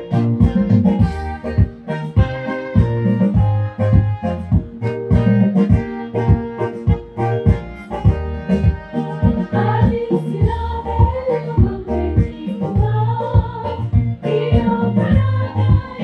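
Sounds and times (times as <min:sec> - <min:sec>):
instrumental backing with bass and beat: 0:00.0 - 0:16.0
choir singing: 0:08.9 - 0:16.0.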